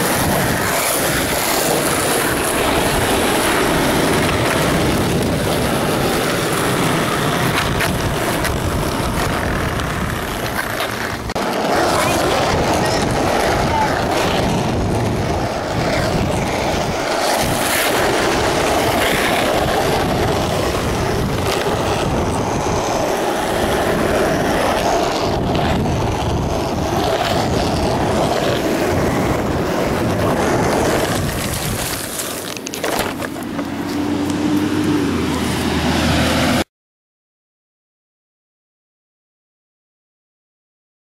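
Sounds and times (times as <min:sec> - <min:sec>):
wind on microphone: 0:00.0 - 0:36.6
skateboard wheels rolling on asphalt: 0:00.0 - 0:36.7
camera hitting the ground: 0:30.7 - 0:34.0.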